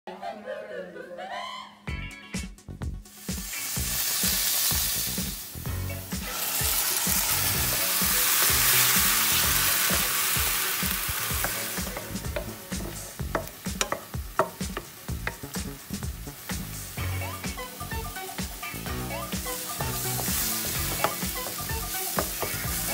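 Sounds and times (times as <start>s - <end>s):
onion sizzling in oil: 3.0s - 22.9s
wooden spatula scraping pan: 11.1s - 15.5s, 19.8s - 22.9s.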